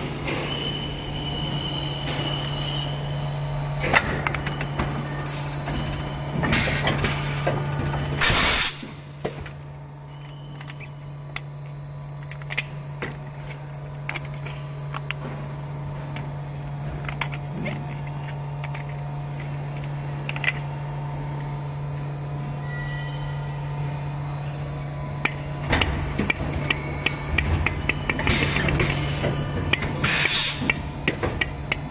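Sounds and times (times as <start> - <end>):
blow moulding machine humming: 0.0 - 31.9
compressed air hissing: 30.0 - 30.7.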